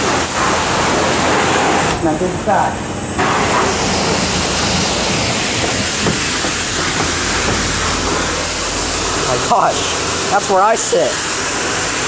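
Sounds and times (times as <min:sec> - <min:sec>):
pressure washer spraying car: 0:00.0 - 0:12.0
low hum: 0:01.9 - 0:10.5.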